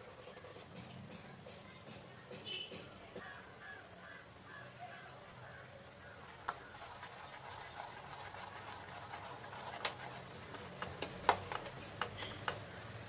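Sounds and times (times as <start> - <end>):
spoon stirring in a bowl: 6.2 - 12.6.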